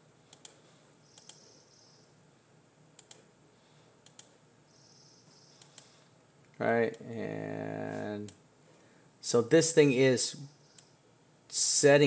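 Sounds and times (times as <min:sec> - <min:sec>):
low room hiss: 0:00.0 - 0:12.0
computer mouse clicks: 0:00.3 - 0:01.5, 0:03.0 - 0:03.3, 0:04.0 - 0:04.4, 0:05.5 - 0:06.0, 0:10.7 - 0:10.9.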